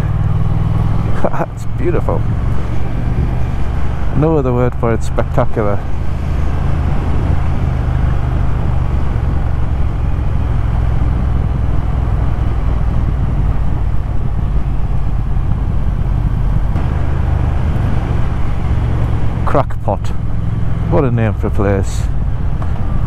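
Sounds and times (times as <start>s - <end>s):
motorcycle engine running: 0.0s - 23.0s
road noise: 0.0s - 23.0s
wind noise on microphone: 2.2s - 4.2s, 5.8s - 19.4s, 22.0s - 23.0s.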